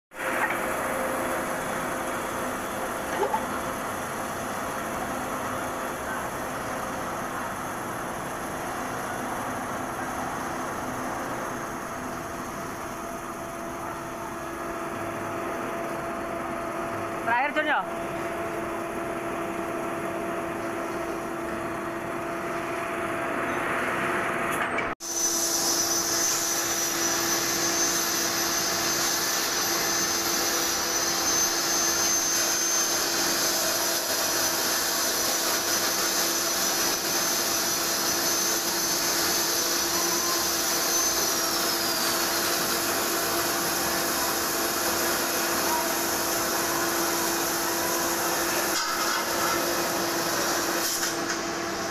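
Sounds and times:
metal lathe humming: 25.1s - 50.8s.

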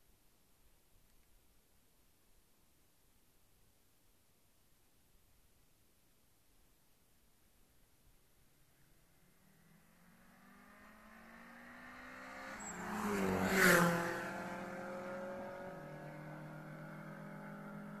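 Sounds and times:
car engine passing at speed: 9.1s - 18.0s.

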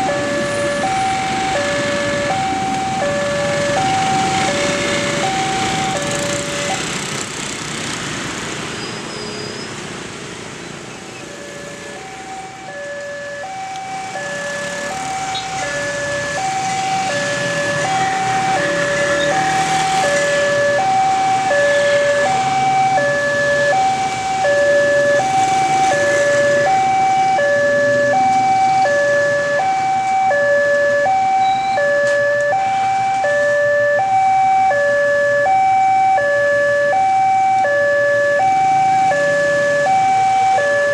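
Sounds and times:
motorbike and car traffic: 0.0s - 40.9s
level crossing alarm chime: 27.4s - 40.9s.

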